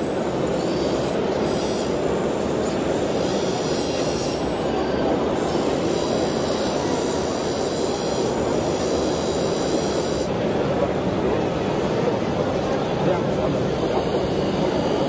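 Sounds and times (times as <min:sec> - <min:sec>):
high-pitched hydraulic whine: 0:00.0 - 0:10.4
model machines mechanical noise: 0:00.0 - 0:15.0.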